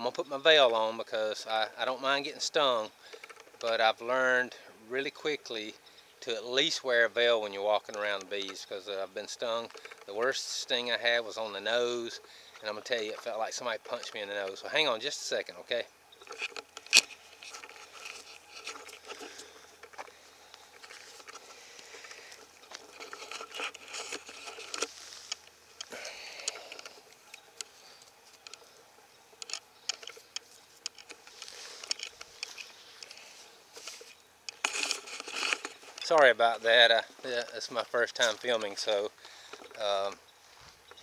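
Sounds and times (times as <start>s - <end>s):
camera handling rustling: 3.0s - 3.8s, 9.6s - 10.2s, 16.1s - 41.0s.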